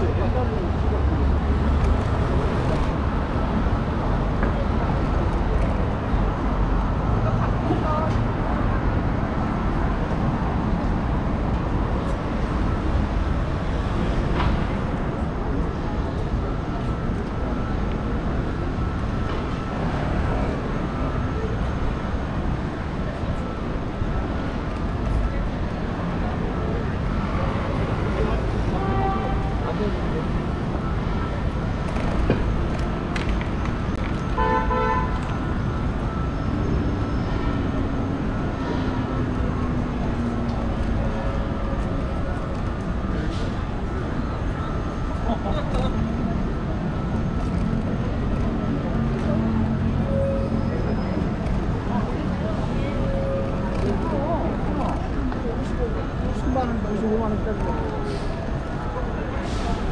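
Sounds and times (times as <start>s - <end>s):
city traffic rumble: 0.0s - 59.9s
vehicle horn beeping: 28.7s - 29.6s, 34.4s - 35.3s.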